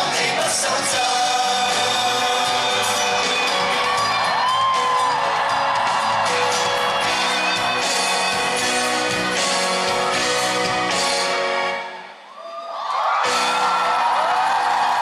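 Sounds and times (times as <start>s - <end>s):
live band music: 0.0s - 12.2s
audience whooping: 2.3s - 9.6s, 12.3s - 15.0s.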